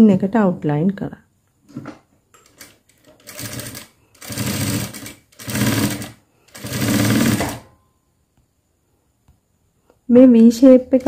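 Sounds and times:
sewing machine stitching: 2.4 - 7.7.

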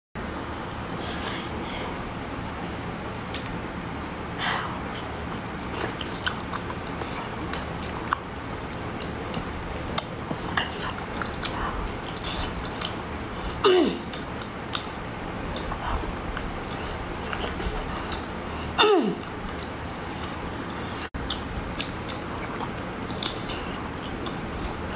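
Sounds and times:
wet chewing and smacking: 2.7 - 3.6, 5.2 - 13.2, 14.1 - 18.4, 19.4 - 24.9.

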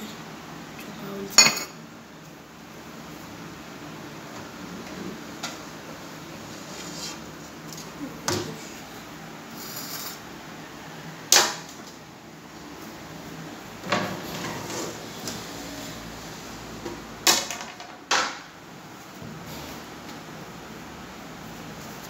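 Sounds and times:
crockery clinking on shelves: 1.4 - 1.8.

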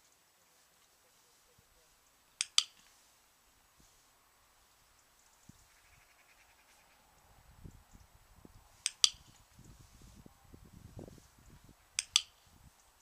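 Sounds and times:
sharp double clicks: 2.4 - 2.9, 8.8 - 9.5, 11.9 - 12.5
wind rumble on microphone: 7.2 - 12.9.

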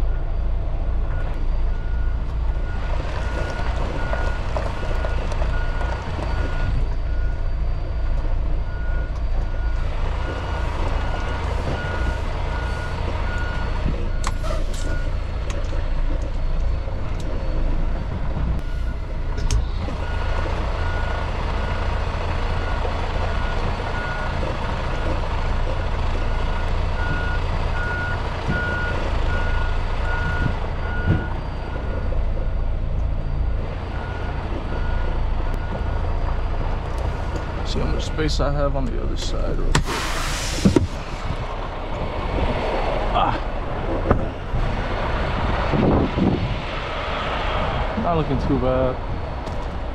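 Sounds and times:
truck reverse alarm beeping: 0.0 - 42.0
diesel engine rumble: 0.0 - 49.9
short air hisses: 39.8 - 41.1.

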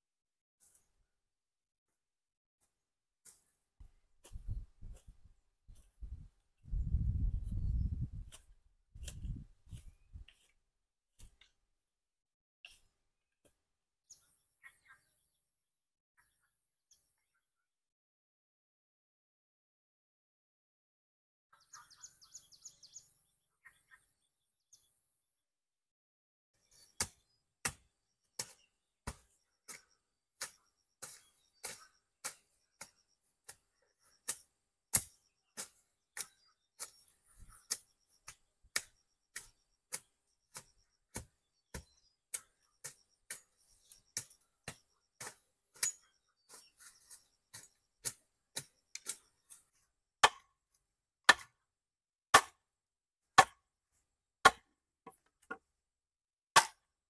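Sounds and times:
hand tool chopping strikes: 27.0 - 33.6, 34.2 - 46.0, 50.2 - 50.5, 51.3 - 51.6, 52.3 - 52.6, 53.4 - 53.6, 54.4 - 55.6, 56.6 - 56.8.

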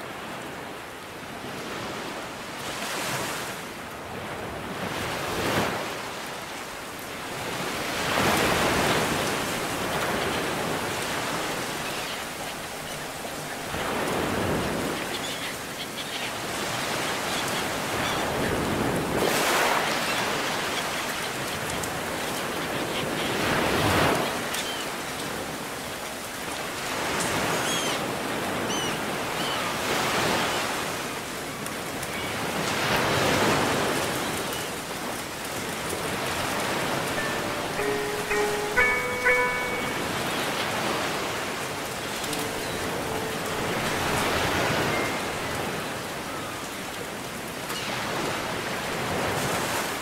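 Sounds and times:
ocean waves washing in: 0.0 - 50.0
faint high chirps: 37.0 - 45.8.

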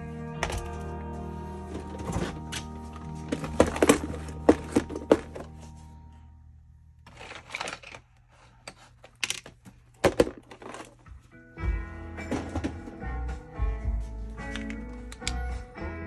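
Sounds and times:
background music: 0.0 - 6.2, 11.0 - 16.0
small parts rattling in box: 1.7 - 5.5, 7.1 - 8.0, 9.0 - 11.0.

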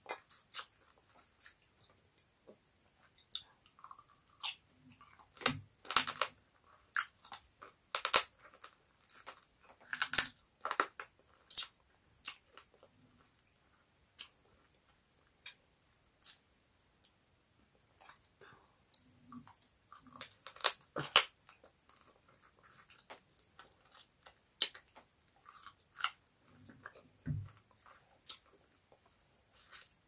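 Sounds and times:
chewing: 3.2 - 5.3, 18.9 - 28.6.

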